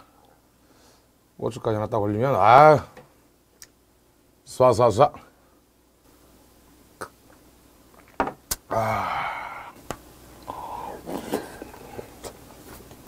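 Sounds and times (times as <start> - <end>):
man exclaiming ahh: 8.7 - 9.8.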